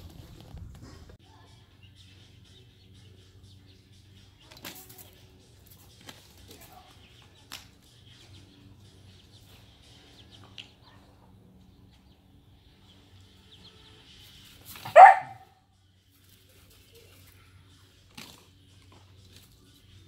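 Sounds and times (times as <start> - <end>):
puppy barking: 14.8 - 15.6.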